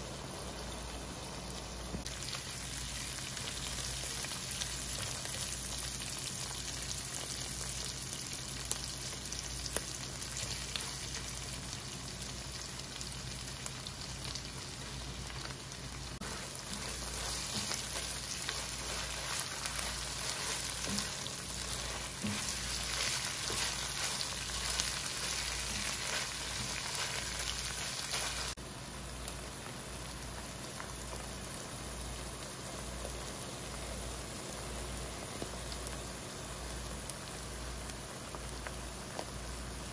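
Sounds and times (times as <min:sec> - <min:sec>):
meat sizzling in a frying pan: 0:00.0 - 0:39.9.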